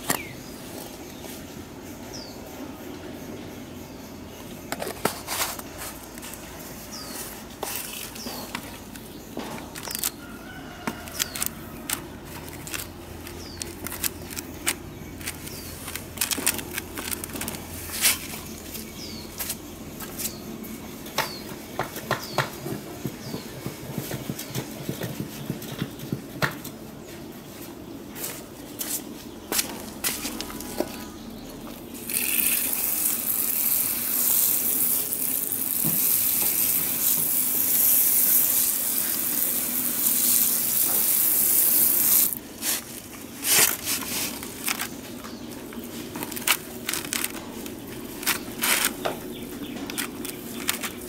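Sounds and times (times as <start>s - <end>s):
coir crackling and rustling: 4.8s - 20.4s, 28.2s - 51.0s.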